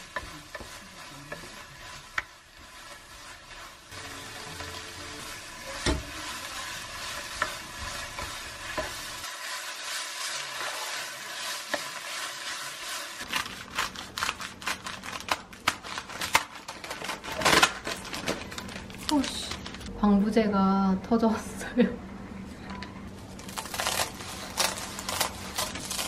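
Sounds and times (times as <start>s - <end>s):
kimchi sizzling in frying pan: 0.0s - 14.8s
wooden spatula stirring: 0.0s - 14.8s
scissors snipping crinkly plastic: 13.3s - 19.9s, 23.4s - 26.0s.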